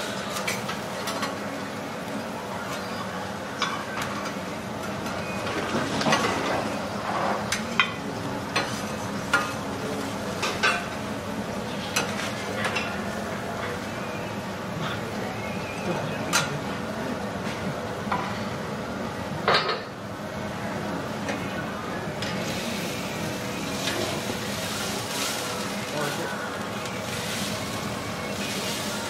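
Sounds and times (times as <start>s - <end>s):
food sizzling on griddle: 22.2s - 29.0s.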